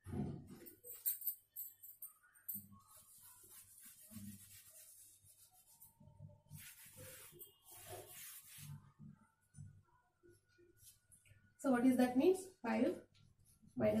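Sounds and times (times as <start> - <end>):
duster rubbing on blackboard: 2.9 - 5.8, 6.5 - 8.8.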